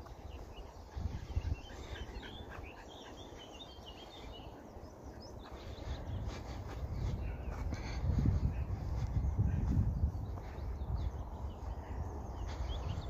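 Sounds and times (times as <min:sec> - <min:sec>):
small birds chirping: 0:00.0 - 0:13.0
low rumble on microphone: 0:04.1 - 0:13.0.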